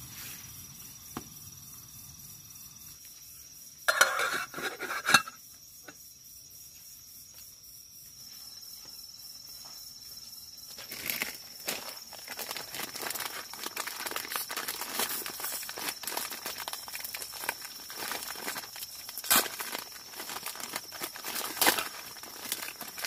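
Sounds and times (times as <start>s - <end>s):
crickets chirring: 0.0s - 23.0s
metallic clatter of cookware: 3.9s - 5.4s.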